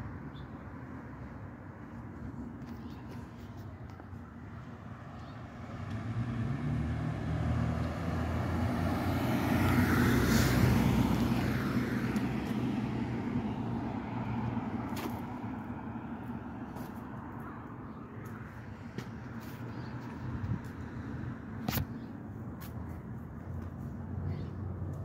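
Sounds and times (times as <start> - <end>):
vehicle driving past: 5.6 - 13.3.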